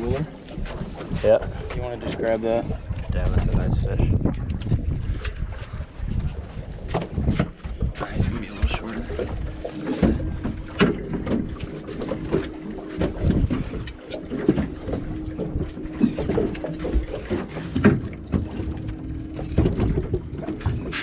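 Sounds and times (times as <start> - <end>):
knocks on boat deck: 8.6 - 13.8, 14.4 - 18.8.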